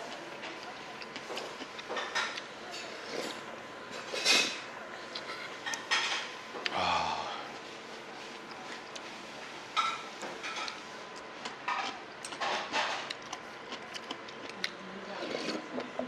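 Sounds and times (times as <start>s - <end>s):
slurping noodles: 15.2s - 15.8s.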